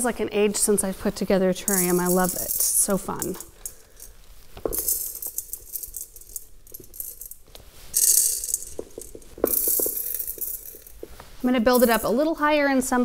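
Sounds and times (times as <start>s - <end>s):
gravel pouring and rattling: 4.6s - 11.0s.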